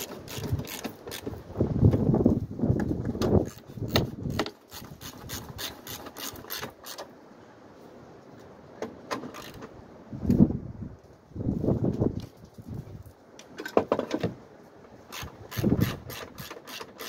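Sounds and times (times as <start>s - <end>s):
hand tools clicking and scraping: 0.0s - 1.4s, 2.8s - 7.1s, 8.8s - 9.8s, 14.9s - 17.0s.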